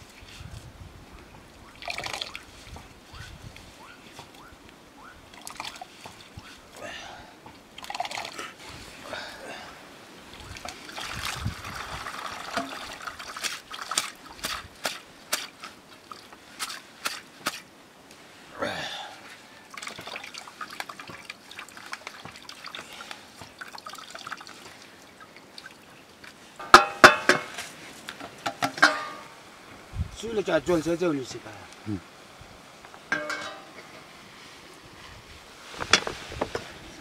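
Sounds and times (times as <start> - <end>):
water trickling and dripping: 1.4 - 6.5, 7.4 - 8.6, 10.3 - 14.7, 19.6 - 27.5
bowl and colander knocks: 26.6 - 27.5, 33.1 - 33.6
ladle clanking on metal wok: 26.6 - 27.5, 28.5 - 29.3, 33.1 - 33.9.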